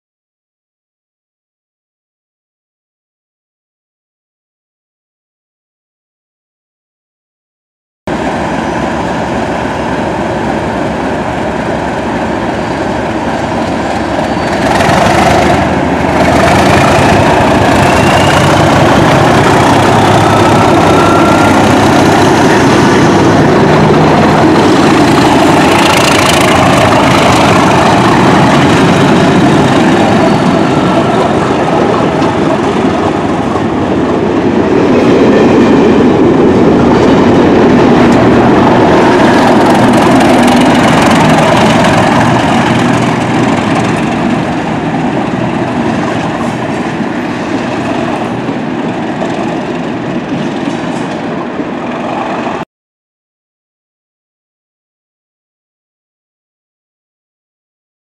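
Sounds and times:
diesel locomotive engine: 8.1s - 52.6s
train wheels clickety-clack on rails: 8.2s - 52.6s.

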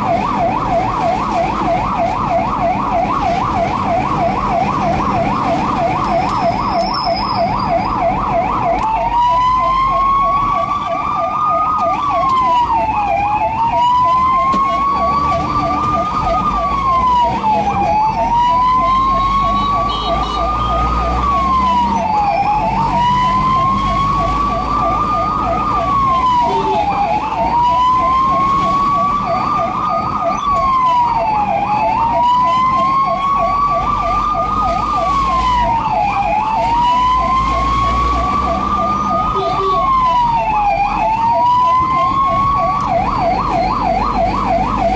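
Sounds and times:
ambulance siren: 0.0s - 44.9s
engine and road rumble: 0.0s - 44.9s.

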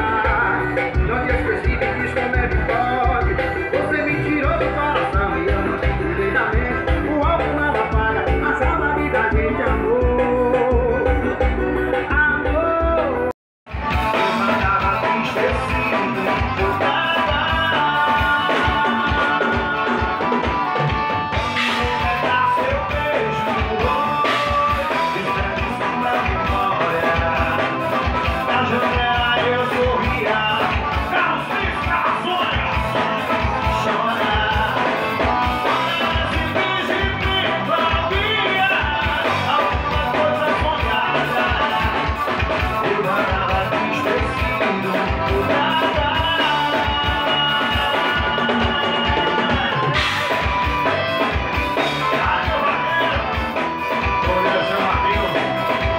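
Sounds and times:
accordion: 0.0s - 55.9s
drum kit beat: 0.0s - 55.9s
electric guitar: 0.0s - 55.9s
person singing into microphone: 0.0s - 55.9s.

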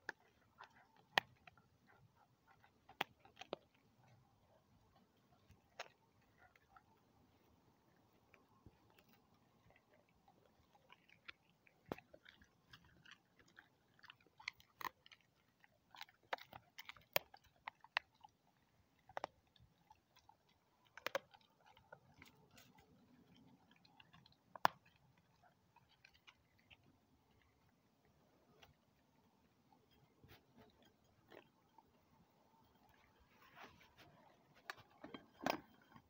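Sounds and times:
dog crunching bone: 0.0s - 7.0s, 7.9s - 29.0s.

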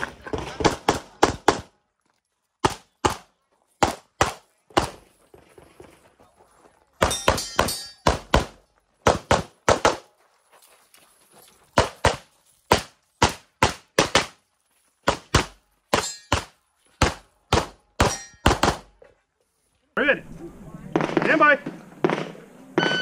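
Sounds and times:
pistol shots fired rapidly: 7.0s - 10.0s, 15.1s - 18.9s.

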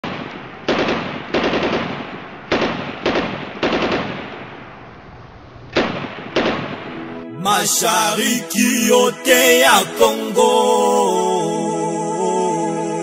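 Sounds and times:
automatic gunfire bursts: 0.0s - 4.5s, 5.8s - 6.8s.

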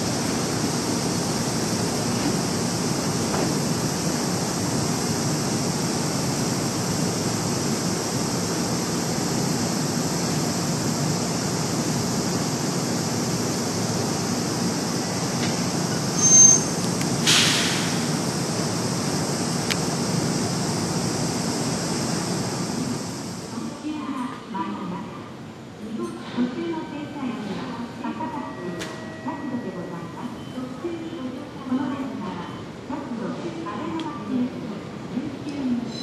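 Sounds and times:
train rumbling: 0.0s - 23.5s
air hiss: 14.8s - 19.7s
brake squeal: 16.2s - 16.8s.

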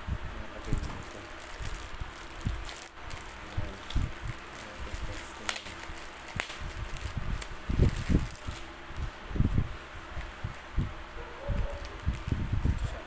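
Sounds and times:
plastic bag crinkling: 0.6s - 8.7s, 11.6s - 12.4s.

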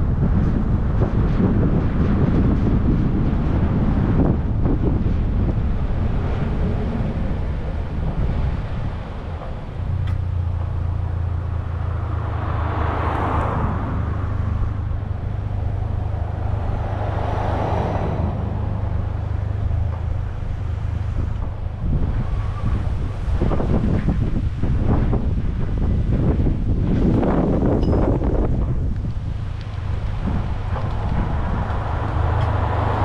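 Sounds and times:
wind buffeting microphone: 0.0s - 33.0s
vehicle engine idling: 4.2s - 27.0s
passing car tyre hiss: 5.0s - 25.0s, 29.2s - 33.0s.

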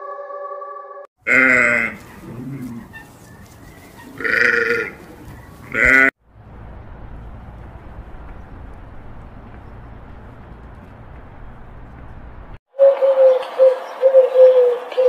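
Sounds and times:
sheep bleating: 1.2s - 2.8s, 4.2s - 5.1s, 5.7s - 6.1s
low outdoor noise: 1.2s - 15.0s.

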